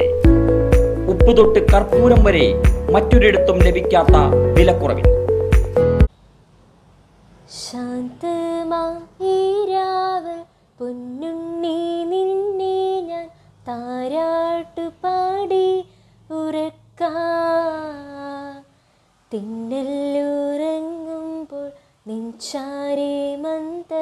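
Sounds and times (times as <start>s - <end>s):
woman singing lullaby: 7.6s - 18.7s, 19.3s - 24.0s.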